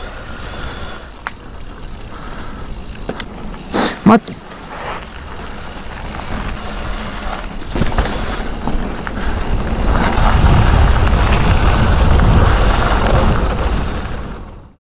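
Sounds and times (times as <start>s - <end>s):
bike rattling clicks: 0.0s - 14.3s
bike tyre rumble on dirt: 0.0s - 14.8s
wind buffeting microphone: 4.7s - 14.7s.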